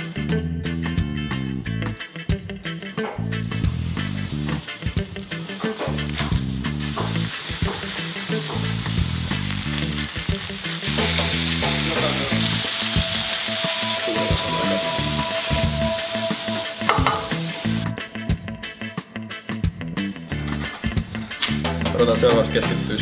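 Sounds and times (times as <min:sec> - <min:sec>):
background music with bass line: 0:00.0 - 0:23.0
meat sizzling in a frying pan: 0:03.4 - 0:17.8.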